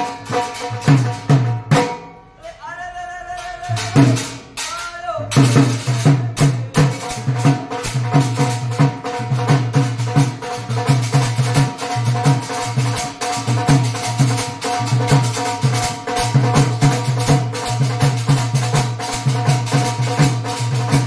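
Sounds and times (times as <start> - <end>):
hand drum beating: 0.0 - 2.2, 3.4 - 21.0
person singing: 2.4 - 7.5.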